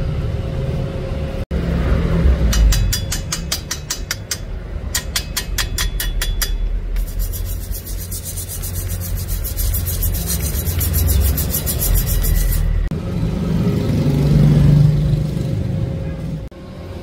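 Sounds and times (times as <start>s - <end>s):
sharp scraping ticks: 2.5s - 12.8s
wire brush grinder on steel: 7.0s - 12.9s.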